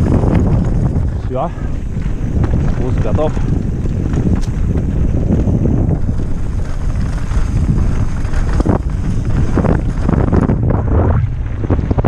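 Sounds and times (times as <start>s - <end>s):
bike knocking and rattling: 0.0s - 12.0s
wind buffeting microphone: 0.0s - 12.0s.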